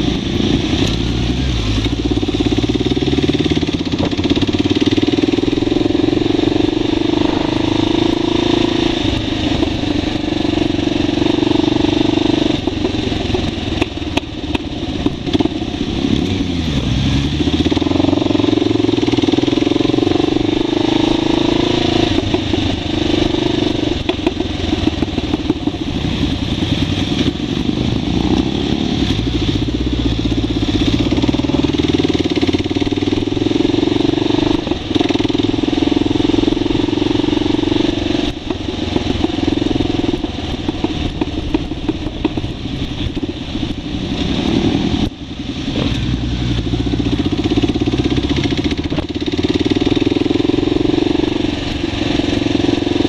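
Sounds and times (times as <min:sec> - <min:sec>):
motorcycle engine running: 0:00.0 - 0:53.0
wind noise: 0:00.0 - 0:53.0.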